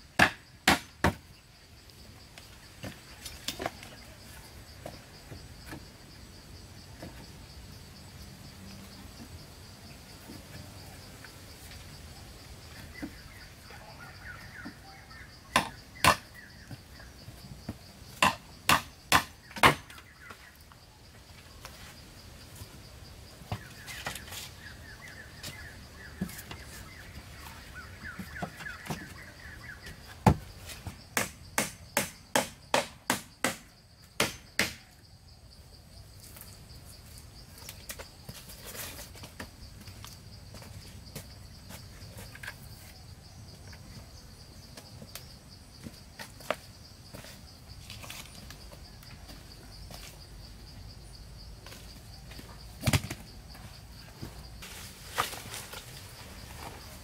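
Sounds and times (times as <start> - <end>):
high insect drone: 0.0 - 57.0
hand tool striking wood: 0.2 - 1.2, 15.5 - 16.3, 18.1 - 20.0, 30.2 - 34.9.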